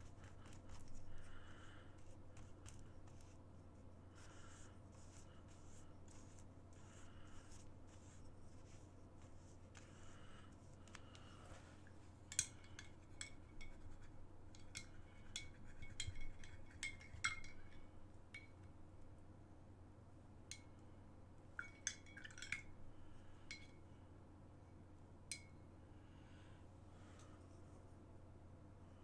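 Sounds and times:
paintbrush clinking against glass cup: 12.3 - 14.0, 14.6 - 18.6, 21.6 - 22.7.

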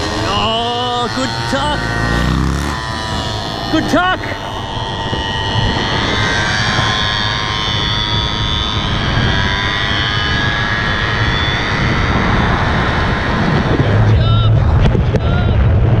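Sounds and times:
scooter engines buzzing: 0.0 - 15.4.

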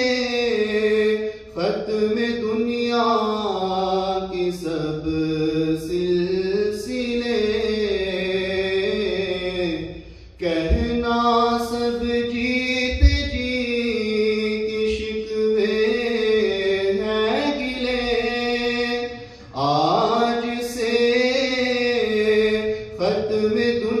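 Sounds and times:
man singing unaccompanied: 0.0 - 24.0
low thump: 10.7 - 11.0, 12.9 - 13.5.

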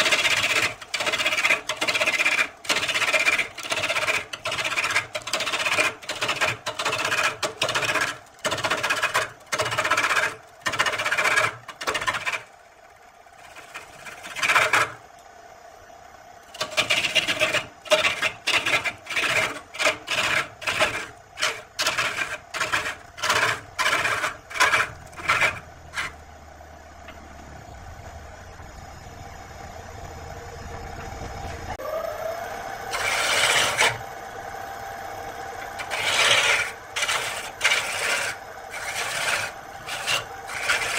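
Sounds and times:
turning tool scraping wood: 0.0 - 12.5, 13.4 - 15.0, 16.5 - 26.2, 32.9 - 34.0, 35.6 - 40.9
wood lathe running: 0.0 - 15.1, 16.5 - 26.2, 31.7 - 40.9.

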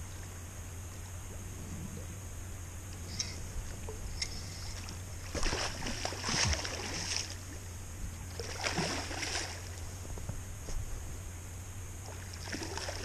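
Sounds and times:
river water rumble: 0.0 - 13.0
water splashing: 3.8 - 9.9, 12.0 - 13.0.

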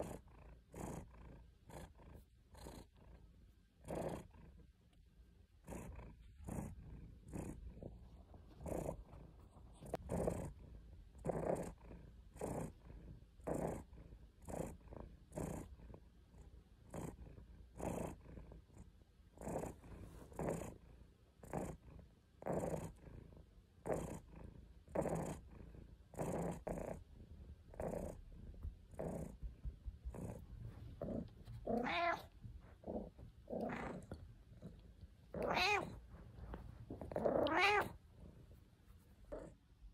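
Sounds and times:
cat purring: 0.0 - 39.9
cat meowing: 31.7 - 32.3, 35.4 - 36.0, 37.2 - 38.0.

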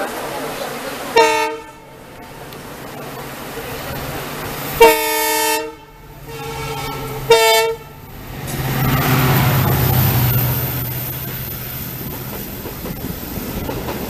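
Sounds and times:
train coaches passing: 0.0 - 14.0
locomotive horn blasts: 1.2 - 2.0, 4.8 - 8.1.

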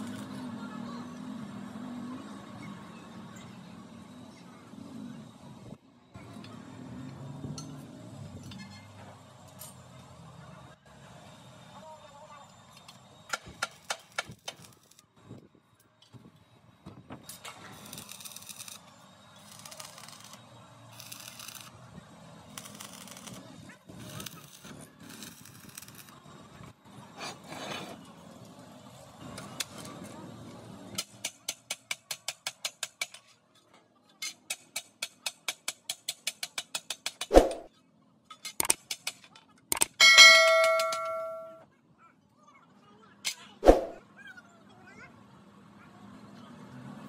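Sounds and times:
welding arc crackling and hissing: 17.7 - 21.7, 22.5 - 23.4, 24.0 - 26.2
hammer tapping on steel: 40.0 - 41.6
steel plate clang: 40.0 - 41.6.

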